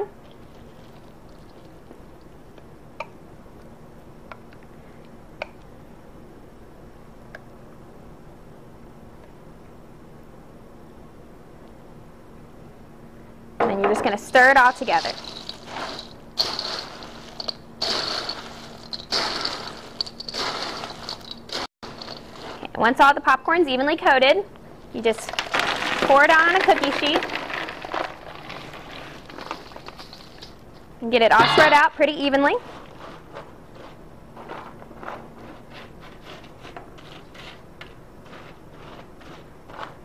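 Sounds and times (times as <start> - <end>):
faint steady hum: 0.0 - 40.0
popcorn stirred in steel bowl: 14.4 - 23.0, 25.0 - 30.6, 31.7 - 40.0.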